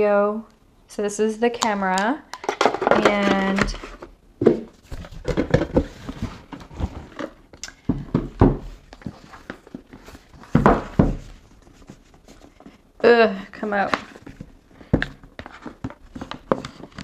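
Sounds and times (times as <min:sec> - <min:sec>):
cardboard box rustling and scraping: 0:04.7 - 0:07.4.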